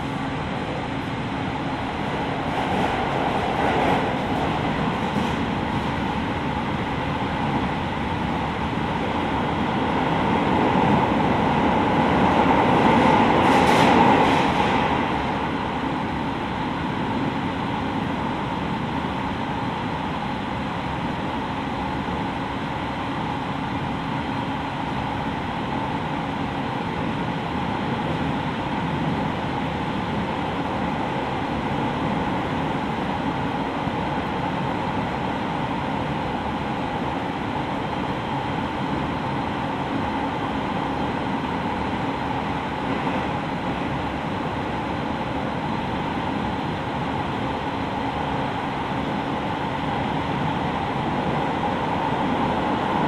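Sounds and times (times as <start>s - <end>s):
train wheels rumbling: 0.0s - 17.3s
faint steady whine: 0.0s - 53.0s.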